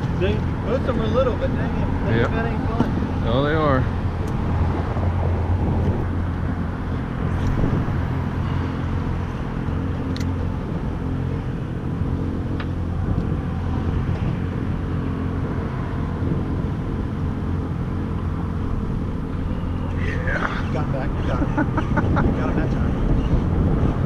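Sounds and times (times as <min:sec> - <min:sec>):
boat engine idling: 0:00.0 - 0:15.6.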